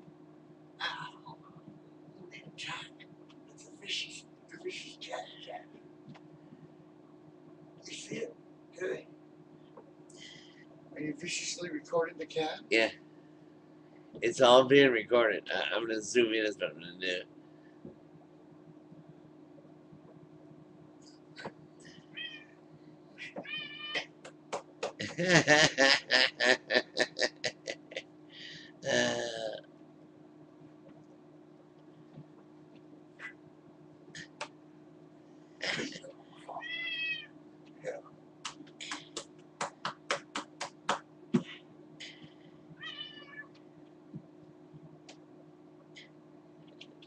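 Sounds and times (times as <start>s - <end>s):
cat meowing: 22.1s - 22.5s, 23.3s - 24.0s, 36.6s - 37.3s, 42.8s - 43.5s.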